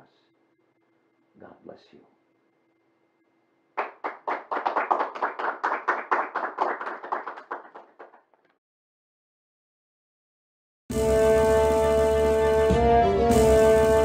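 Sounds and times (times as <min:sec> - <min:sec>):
hands clapping: 0:03.8 - 0:08.6.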